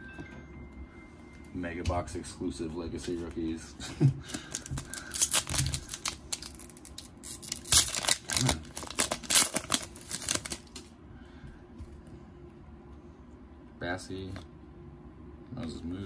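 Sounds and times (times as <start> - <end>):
foil wrapper tearing and crinkling: 4.3 - 10.9.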